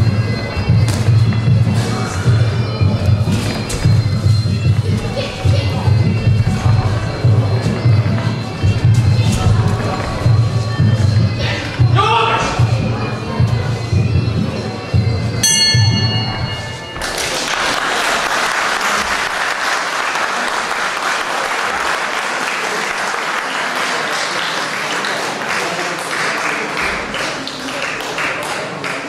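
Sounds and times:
bell ringing: 0:14.9 - 0:18.0
crowd applauding: 0:16.9 - 0:29.0.

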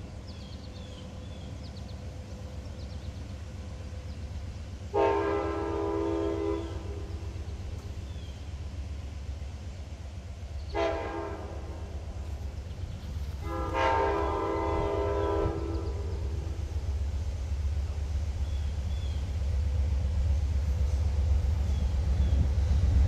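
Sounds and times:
train air horn: 0:04.9 - 0:07.1, 0:10.7 - 0:12.0, 0:13.4 - 0:16.5.

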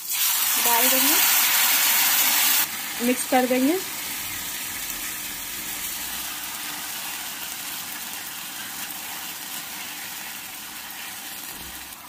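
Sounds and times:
vegetables sizzling in a frying pan: 0:00.0 - 0:12.0
spatula stirring in a pan: 0:07.0 - 0:12.0.

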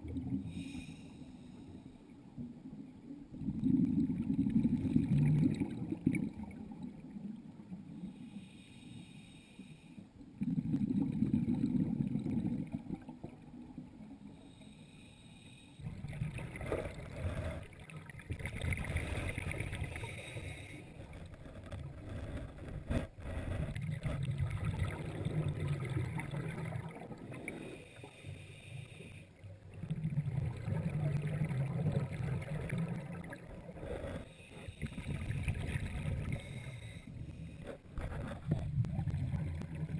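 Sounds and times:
muffled underwater exhalation bubbles: 0:10.4 - 0:13.4, 0:23.6 - 0:27.5, 0:29.8 - 0:33.7, 0:38.0 - 0:39.9.

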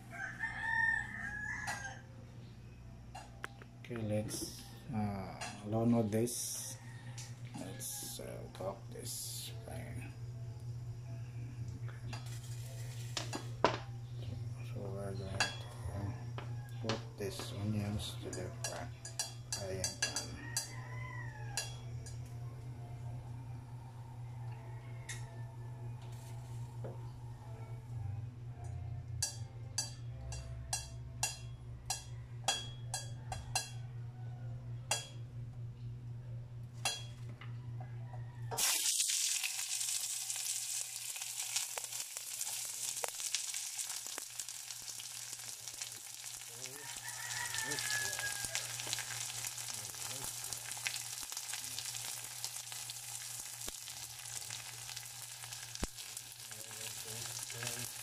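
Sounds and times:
onions sizzling in saucepan: 0:38.5 - 0:58.0.

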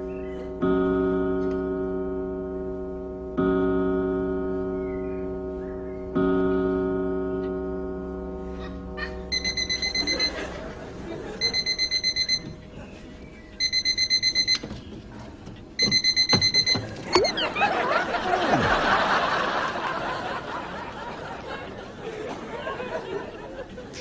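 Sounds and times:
alarm clock beeping: 0:09.3 - 0:12.7, 0:13.6 - 0:14.7, 0:15.8 - 0:18.1
studio audience laughter: 0:10.0 - 0:11.7, 0:17.3 - 0:24.0.

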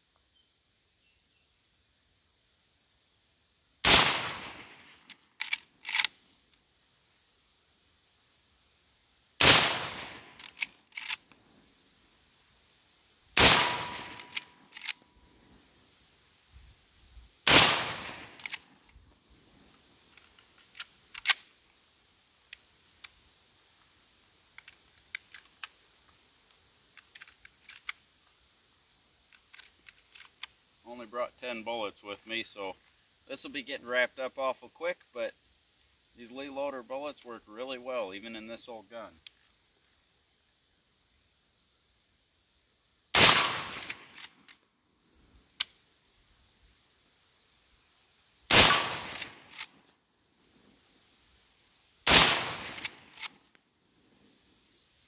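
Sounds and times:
rifle shots: 0:03.8 - 0:05.0, 0:09.4 - 0:10.5, 0:13.4 - 0:14.9, 0:17.5 - 0:18.5, 0:43.2 - 0:44.2, 0:48.5 - 0:49.7, 0:52.1 - 0:53.3
small metallic clicks: 0:05.0 - 0:06.7, 0:10.3 - 0:11.4, 0:13.8 - 0:15.2, 0:18.3 - 0:19.0, 0:19.7 - 0:21.8, 0:22.4 - 0:23.2, 0:24.5 - 0:28.4, 0:29.2 - 0:30.6, 0:43.7 - 0:44.7, 0:45.6 - 0:45.8, 0:49.0 - 0:49.9, 0:52.6 - 0:53.6.

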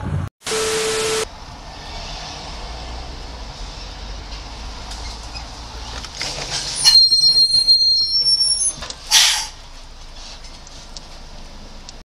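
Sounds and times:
car road noise: 0:00.0 - 0:12.0
vehicle crashing clatter: 0:04.2 - 0:07.5
high-pitched brake squeal: 0:06.6 - 0:09.6.

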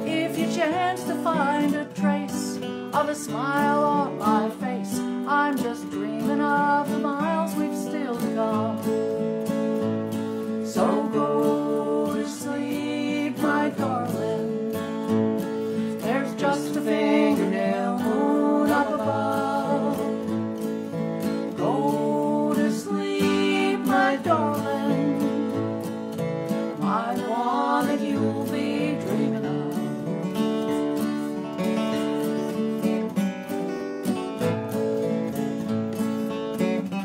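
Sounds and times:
woman singing: 0:00.0 - 0:09.2, 0:10.5 - 0:15.2, 0:15.8 - 0:30.7
picked acoustic guitar: 0:00.0 - 0:37.0
strummed acoustic guitar: 0:00.0 - 0:37.0.

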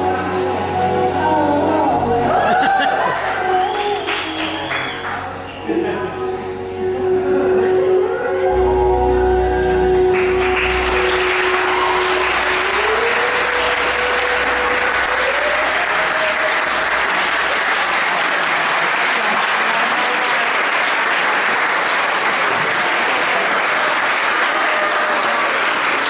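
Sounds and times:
backing music with low bass: 0:00.0 - 0:17.5
audience applauding: 0:02.5 - 0:05.4, 0:09.9 - 0:26.0.

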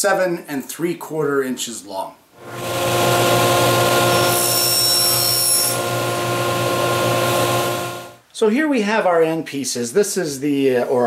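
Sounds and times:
electric power saw running: 0:02.4 - 0:08.2.

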